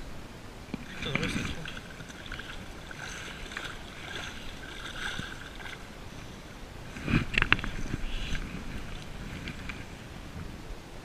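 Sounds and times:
splashing and knocking: 0:00.7 - 0:05.9, 0:06.9 - 0:10.0
water sloshing and lapping: 0:00.7 - 0:10.6.

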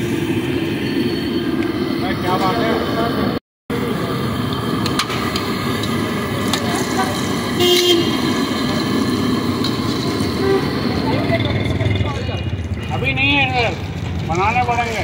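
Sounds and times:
traffic rumble: 0:00.0 - 0:15.0
voices: 0:01.9 - 0:15.0
vehicle horn toot: 0:07.6 - 0:08.3, 0:10.4 - 0:10.8.

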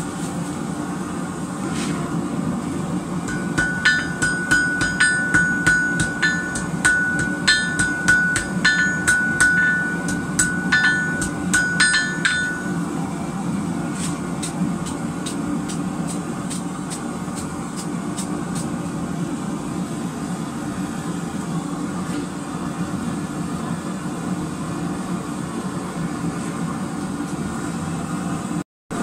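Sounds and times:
hammer ringing on anvil: 0:03.3 - 0:12.9.

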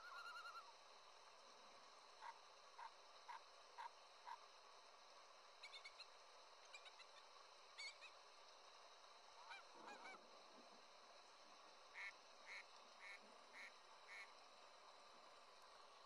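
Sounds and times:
geese honking: 0:00.0 - 0:00.5.

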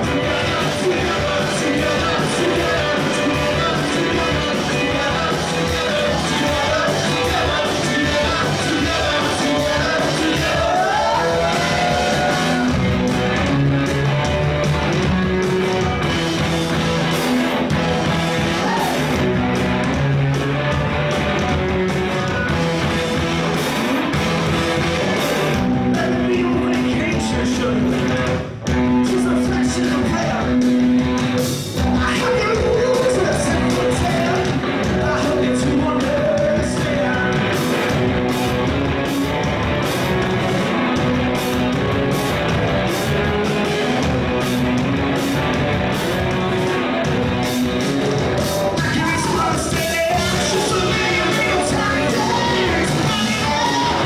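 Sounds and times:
lead singer's voice: 0:00.0 - 0:13.0, 0:18.3 - 0:19.3, 0:25.5 - 0:30.9, 0:31.8 - 0:38.0, 0:48.6 - 0:54.0
drums: 0:00.0 - 0:54.0
electric bass: 0:00.0 - 0:54.0
electric guitars: 0:00.0 - 0:54.0.

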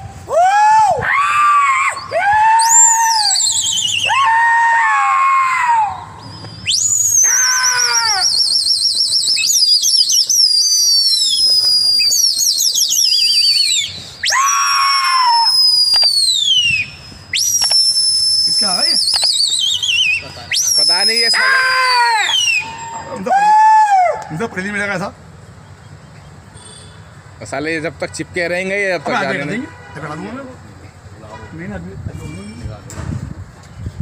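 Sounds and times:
loud warbling whistles: 0:01.7 - 0:04.5, 0:05.8 - 0:23.8
person shouting calls: 0:07.2 - 0:08.5, 0:14.2 - 0:15.6, 0:20.5 - 0:24.3.

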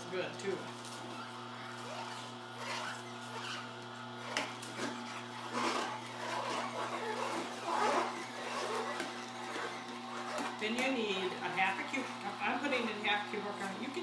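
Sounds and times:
juicer motor hum: 0:00.0 - 0:14.0
plunger scraping in chute: 0:02.0 - 0:10.6.

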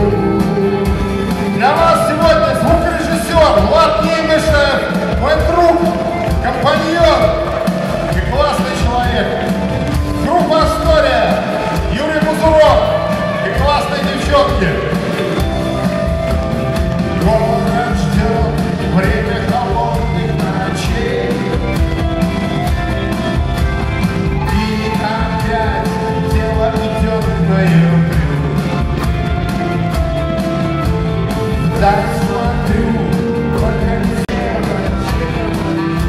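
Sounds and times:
man singing: 0:00.0 - 0:09.6, 0:17.1 - 0:22.6, 0:24.4 - 0:29.1, 0:31.6 - 0:36.0
live band playing: 0:00.0 - 0:36.0.

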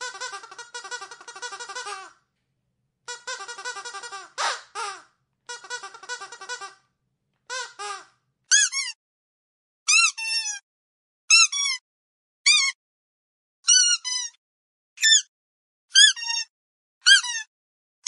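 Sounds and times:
squeaky dog toy squeaking: 0:00.0 - 0:02.1, 0:03.1 - 0:06.8, 0:07.5 - 0:09.0, 0:09.9 - 0:10.6, 0:11.3 - 0:11.8, 0:12.5 - 0:12.8, 0:13.7 - 0:14.4, 0:15.0 - 0:15.3, 0:15.9 - 0:17.5.

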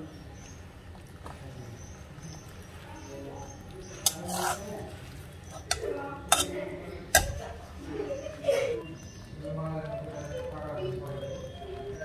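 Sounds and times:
metal spatula scraping a pan: 0:03.8 - 0:07.5
spatula clinking on pan: 0:04.0 - 0:04.7, 0:05.5 - 0:07.6.

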